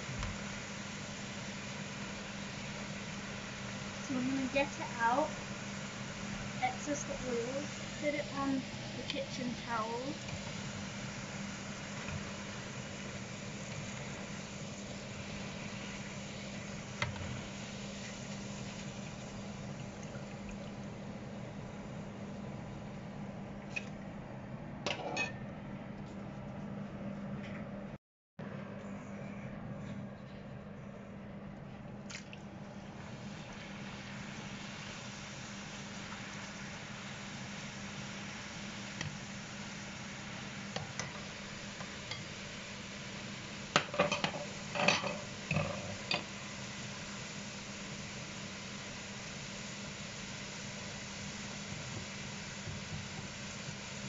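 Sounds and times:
steady hiss: 0.0 - 23.0, 33.0 - 54.0
chips frying in hot oil: 0.0 - 23.9, 32.7 - 54.0
utensils clinking against pan: 43.9 - 46.2.

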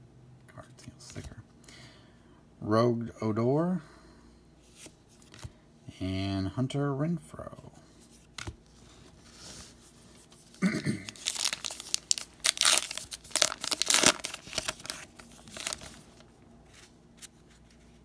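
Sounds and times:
wrapper tearing and crinkling: 11.0 - 16.2.

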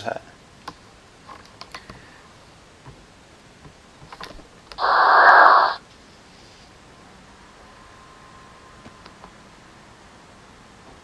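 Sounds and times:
hissing static burst: 4.8 - 5.8.

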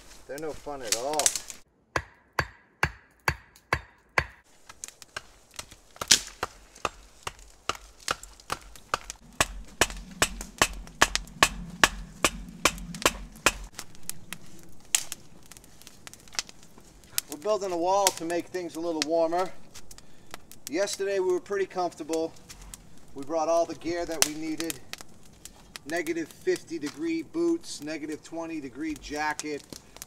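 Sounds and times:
sharp knocks and cracks: 0.8 - 14.2, 14.8 - 19.1, 24.0 - 27.0
hatchet striking wooden stake: 1.2 - 13.8.

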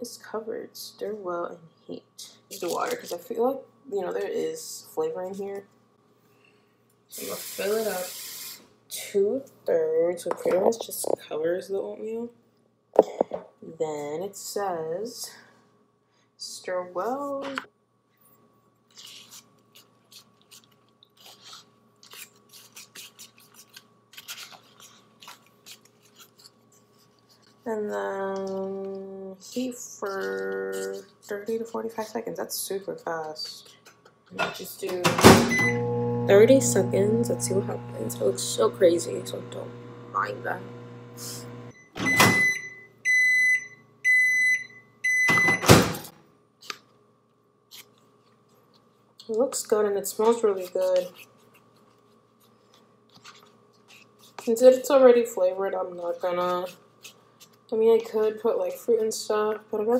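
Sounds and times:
spoon scraping a cardboard cup: 18.9 - 27.6
microwave beeping: 35.1 - 46.0.

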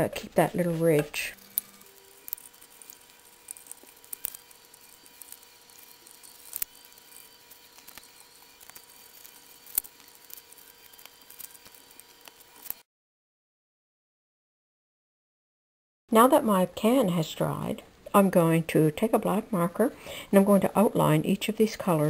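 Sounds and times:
faint steady hum: 16.1 - 22.0.

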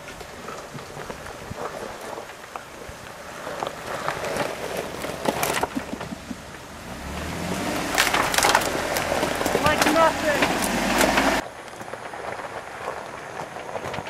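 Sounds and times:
tyres crunching over gravel: 0.0 - 14.0
low engine hum: 3.2 - 11.4.

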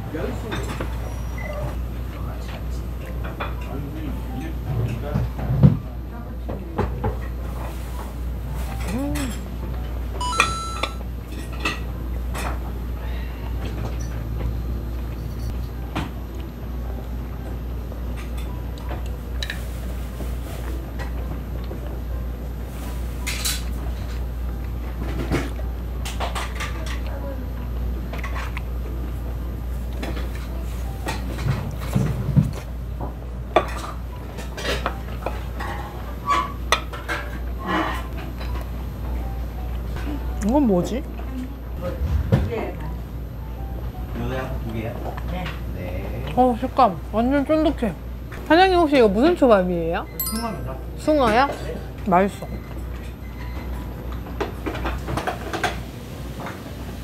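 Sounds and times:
low steady hum: 0.0 - 57.0
plates and chopsticks clinking: 8.6 - 12.6, 33.5 - 38.6, 50.2 - 51.7
loud ringing plate clink: 50.2 - 51.0.

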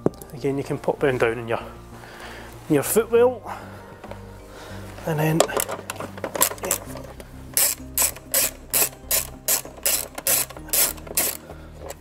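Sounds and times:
socket ratchet clicking: 5.4 - 12.0.

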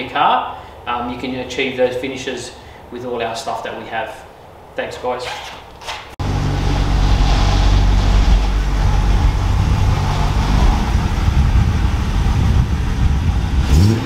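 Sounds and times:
car engine idling: 6.2 - 14.0.

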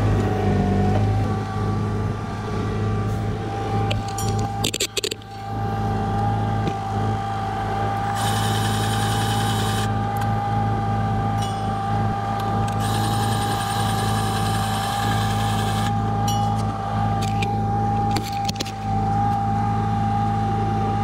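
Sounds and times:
forklift engine idling: 0.0 - 21.0
grease gun motor whirring: 3.7 - 10.8, 12.2 - 19.2.

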